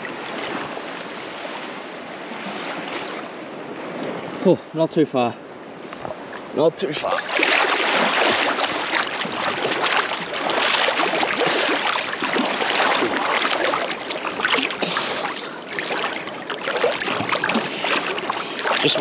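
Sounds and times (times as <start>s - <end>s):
water splashing from swimming: 6.9s - 19.0s.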